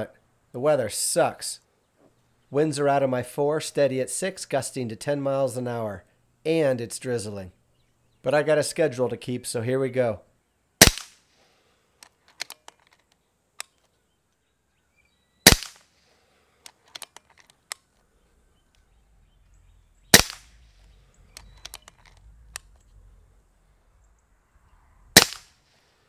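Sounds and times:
air rifle shots: 0:10.8 - 0:11.2, 0:15.4 - 0:15.9, 0:20.1 - 0:22.7, 0:25.1 - 0:25.6
rifle cocking clicks: 0:16.6 - 0:17.9, 0:20.1 - 0:20.5, 0:21.3 - 0:22.9.

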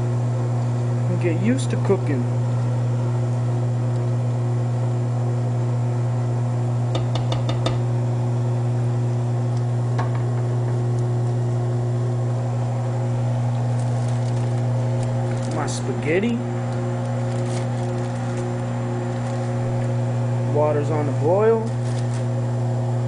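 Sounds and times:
kitchen appliance electrical hum: 0:00.0 - 0:23.0
spoon knocking pot: 0:07.0 - 0:07.8.

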